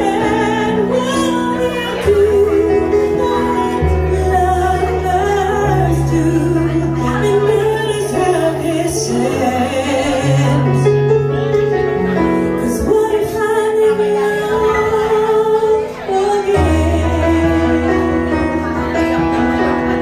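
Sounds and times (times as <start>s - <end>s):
slow ballad backing track: 0.0s - 20.0s
woman singing into a microphone: 0.0s - 20.0s.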